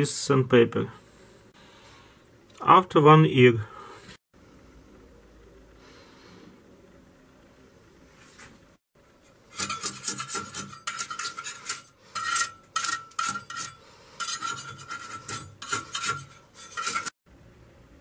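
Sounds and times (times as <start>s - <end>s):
sandpaper scrubbing rusty steel: 9.5s - 17.2s.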